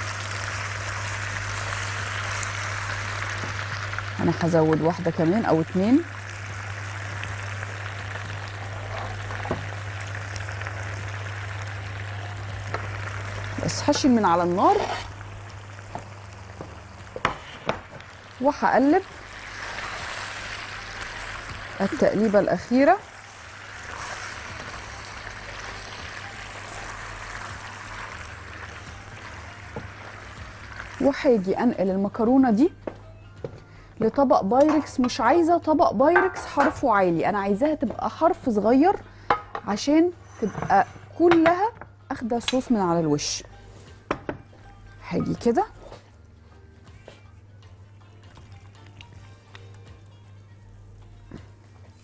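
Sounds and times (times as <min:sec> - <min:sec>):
food sizzling in wok: 0:00.0 - 0:32.7.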